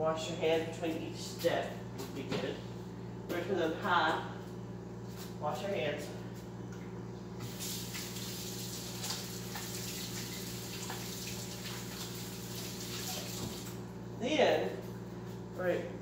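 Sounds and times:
steady low hum: 0.0s - 16.0s
hands washing under water: 7.4s - 13.8s.

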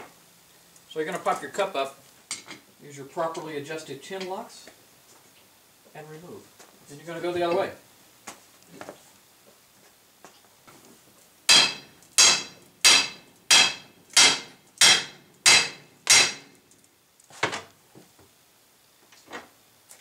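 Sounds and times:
hammer striking metal: 11.5s - 16.5s.

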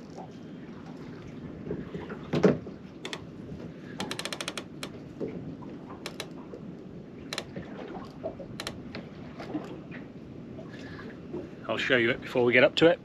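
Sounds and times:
fishing reel clicking: 4.0s - 4.9s.

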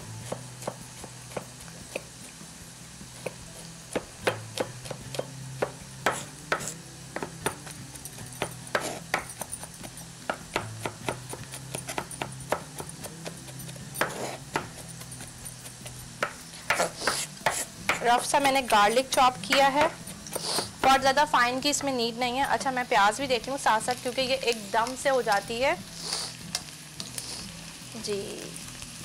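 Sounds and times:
knife chopping on wooden board: 0.2s - 2.1s, 3.2s - 18.8s, 19.5s - 21.1s.

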